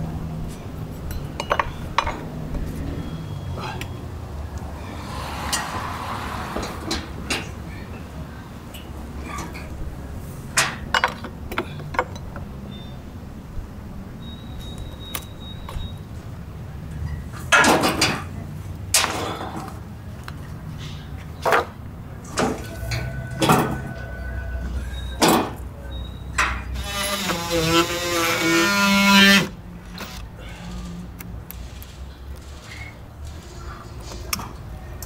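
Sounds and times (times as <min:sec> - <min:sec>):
power tool whirring: 0:26.8 - 0:30.3.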